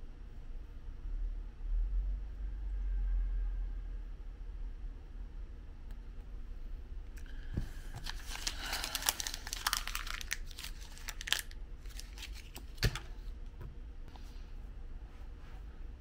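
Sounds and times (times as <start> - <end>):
crinkling and crackling: 7.2 - 13.5.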